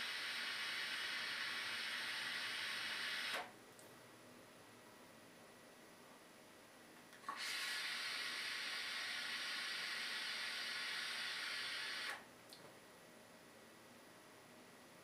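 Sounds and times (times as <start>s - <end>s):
hiss of air drawn through vape: 0.0s - 3.5s, 7.2s - 12.2s.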